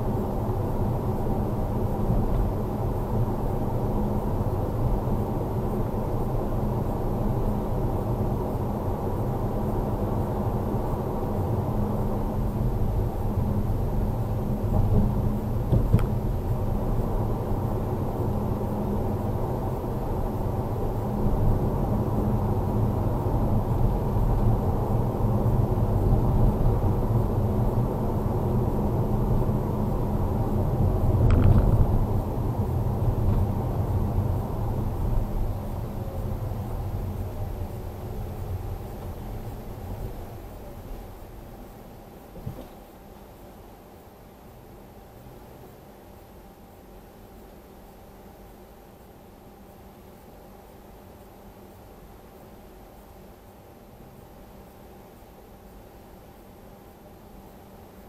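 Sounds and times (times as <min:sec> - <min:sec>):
car engine and tyre noise: 0:00.0 - 0:41.2.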